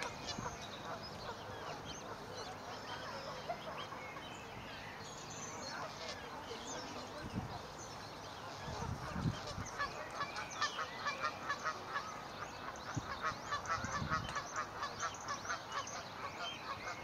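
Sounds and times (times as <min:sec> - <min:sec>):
cygnets peeping: 0:00.0 - 0:17.0.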